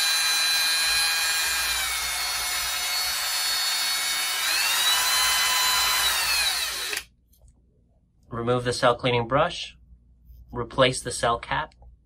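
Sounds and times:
cordless drill motor whine: 0.0 - 7.1.

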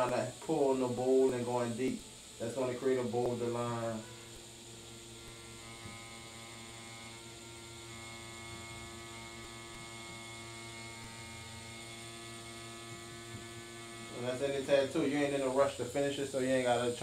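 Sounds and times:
tattoo machine humming: 0.0 - 17.0.

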